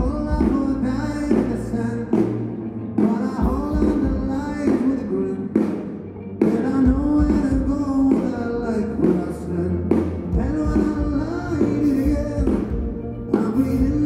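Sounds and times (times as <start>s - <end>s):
live rock band playing: 0.0s - 14.0s
person singing: 0.0s - 14.0s.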